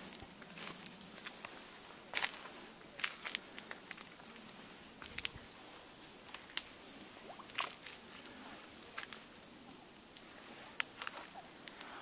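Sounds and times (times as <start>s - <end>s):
footsteps on dry leaves: 0.0s - 4.9s
faint steady hiss: 0.0s - 12.0s.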